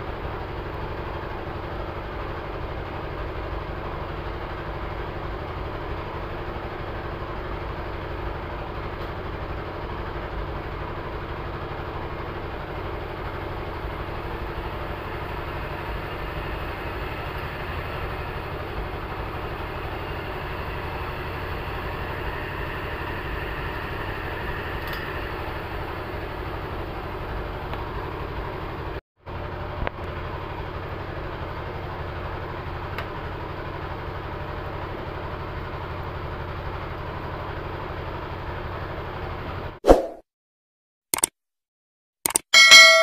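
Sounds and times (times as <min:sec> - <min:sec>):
blower motor humming: 0:11.0 - 0:28.9.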